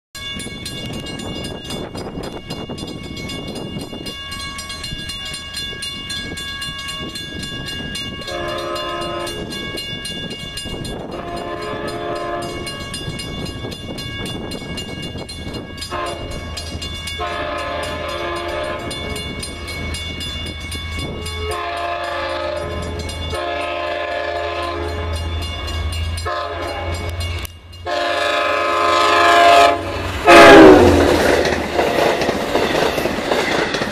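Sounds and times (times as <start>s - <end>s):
crossing bell ringing: 0.2s - 33.9s
locomotive air horn blasts: 8.3s - 9.5s, 11.2s - 12.8s, 15.9s - 16.4s, 17.2s - 19.2s, 21.2s - 25.4s, 26.2s - 27.2s, 27.8s - 31.2s.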